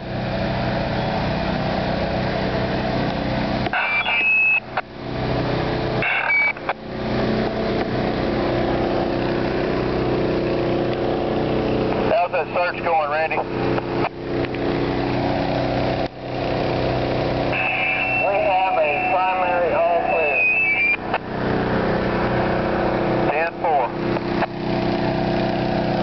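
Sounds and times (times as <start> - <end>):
engine idling drone: 0.0 - 26.0
short high beep: 3.8 - 4.7, 6.0 - 6.6, 17.6 - 21.0.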